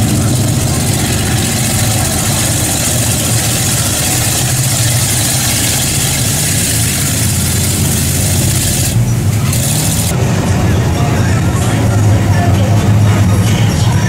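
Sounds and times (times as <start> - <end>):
water and mud churning: 0.0 - 10.1
truck engine running: 0.0 - 14.0.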